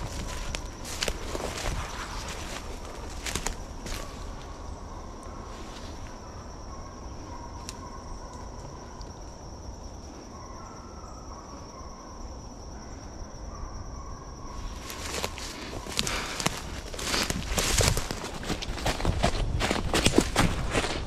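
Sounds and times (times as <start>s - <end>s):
footsteps through leaf litter: 0.0s - 4.3s, 14.7s - 21.0s
high-pitched insect trill: 0.0s - 21.0s.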